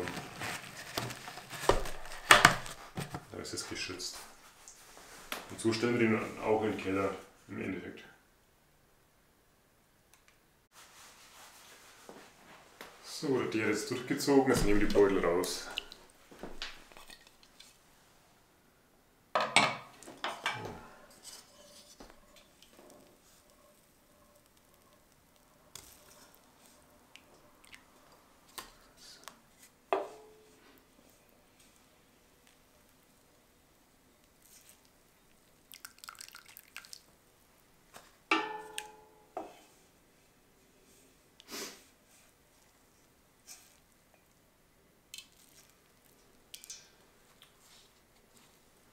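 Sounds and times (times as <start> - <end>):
tea dripping and splashing: 14.8 - 16.2, 24.4 - 28.3, 34.2 - 37.2, 45.1 - 47.5
small clicks and crackles: 45.1 - 48.3.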